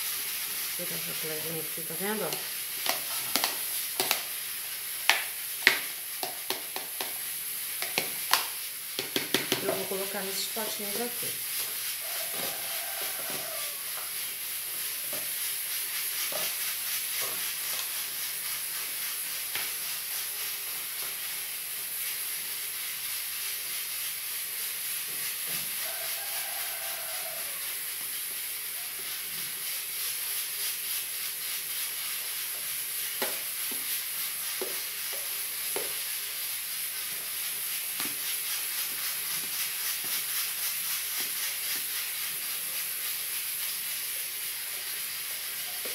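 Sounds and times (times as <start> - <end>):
steady high hiss: 0.0 - 45.9.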